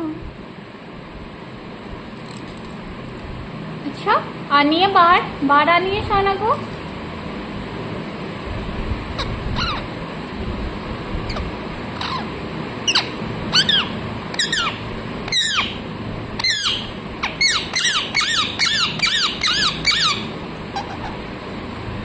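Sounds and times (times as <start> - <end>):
parakeet calling: 9.2 - 10.0, 11.3 - 15.8, 16.4 - 21.3.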